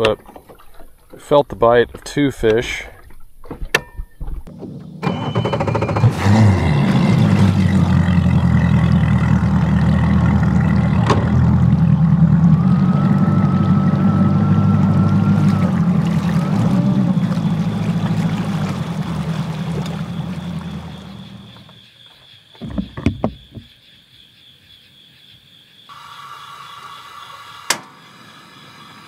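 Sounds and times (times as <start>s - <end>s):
hull and water noise: 0.0s - 21.8s, 22.5s - 23.8s
outboard motor running: 4.5s - 21.7s
sharp knocks: 22.6s - 23.7s.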